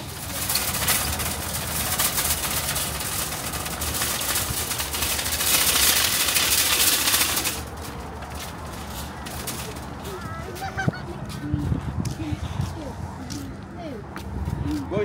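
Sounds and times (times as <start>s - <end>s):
shopping trolley rattling: 0.0s - 11.0s.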